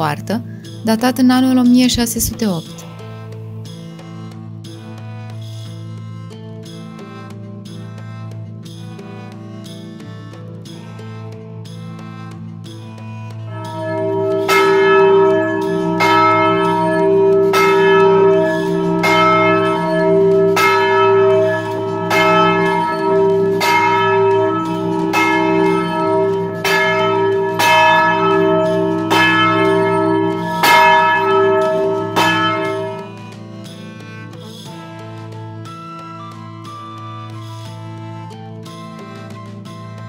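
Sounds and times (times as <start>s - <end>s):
church bell ringing: 13.5s - 33.4s.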